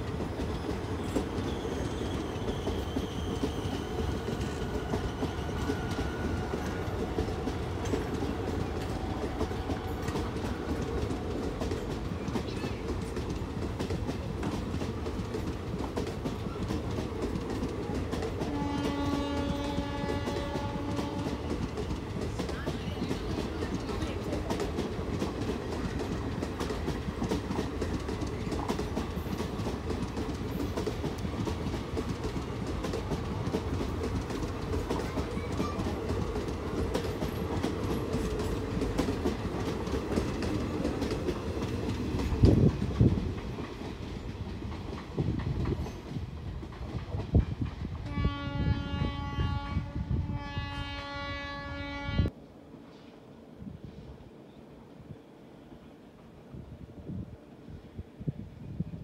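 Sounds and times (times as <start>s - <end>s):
train rumbling and clacking: 0.0s - 59.0s
locomotive horn blasts: 18.4s - 21.5s, 48.0s - 52.3s.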